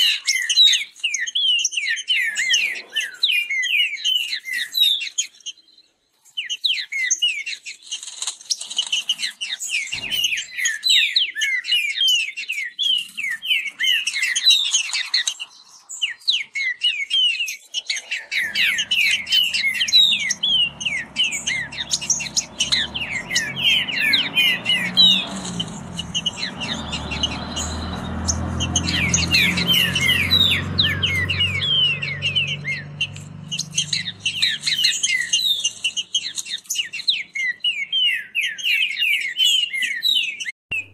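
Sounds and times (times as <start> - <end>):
birds singing fast: 0.0 - 40.9
low steady rumble: 18.4 - 29.2.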